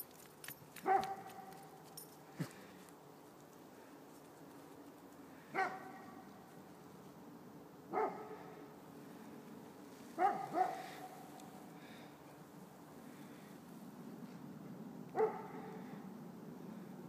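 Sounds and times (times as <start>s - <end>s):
dog barking: 0.8s - 1.6s, 5.5s - 6.3s, 7.9s - 8.5s, 10.2s - 11.3s, 15.1s - 15.8s.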